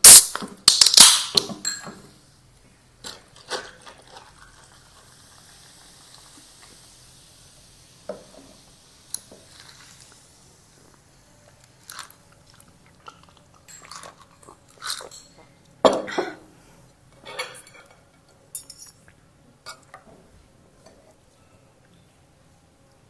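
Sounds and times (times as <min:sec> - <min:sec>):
cutlery clinking on plate: 0:17.2 - 0:19.0.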